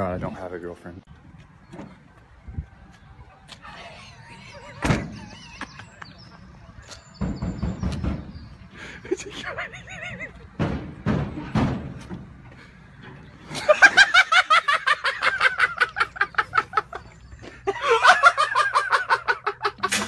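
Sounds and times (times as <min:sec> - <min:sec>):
person laughing hard: 0:09.0 - 0:10.5, 0:13.5 - 0:20.0.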